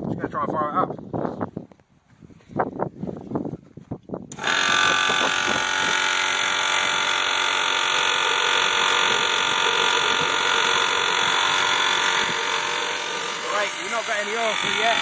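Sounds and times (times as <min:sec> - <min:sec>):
electric pump buzzing whine: 0:04.3 - 0:15.0
air hissing through nozzle: 0:08.0 - 0:15.0.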